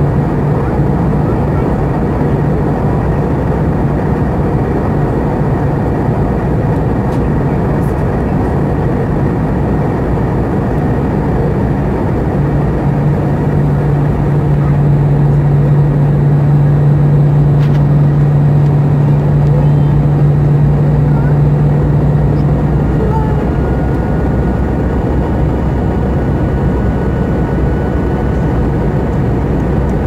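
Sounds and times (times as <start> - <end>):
jet engines and airflow rush: 0.0 - 30.0
low engine drone: 0.0 - 30.0.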